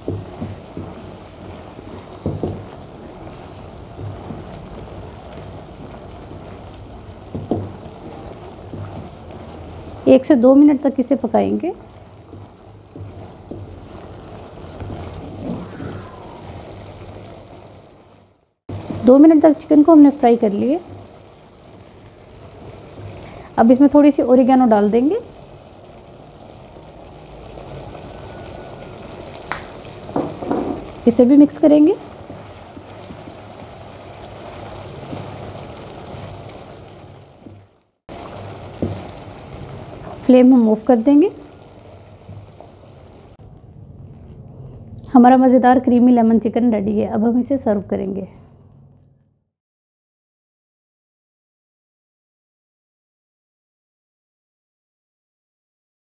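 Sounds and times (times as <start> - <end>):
wooden spatula stirring: 0.0 - 16.0, 18.7 - 19.6, 27.6 - 40.4
sauce simmering and sizzling: 0.0 - 47.3.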